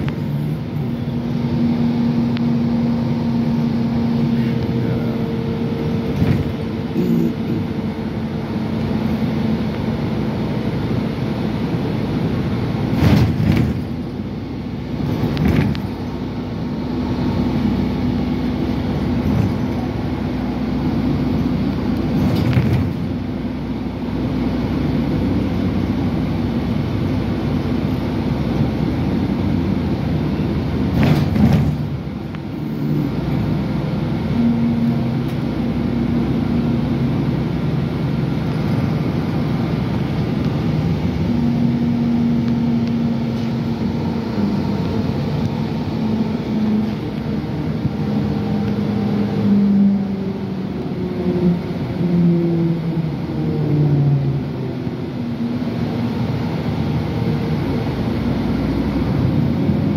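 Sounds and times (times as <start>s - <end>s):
bus engine and road noise: 0.0s - 59.9s
bus bump: 5.9s - 7.9s, 12.7s - 14.3s, 15.0s - 16.3s, 18.9s - 20.1s, 21.4s - 23.3s, 30.7s - 32.5s.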